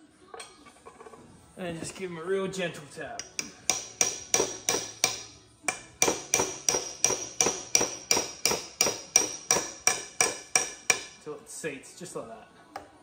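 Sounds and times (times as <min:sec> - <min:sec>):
hammer tapping on steel socket: 0:03.2 - 0:11.2.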